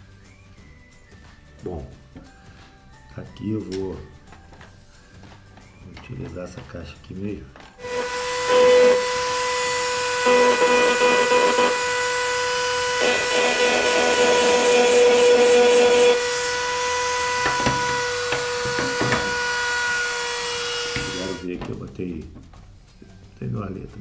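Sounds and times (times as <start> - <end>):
bit grinding on box: 7.8 - 19.4
rotary tool whining: 7.8 - 21.5.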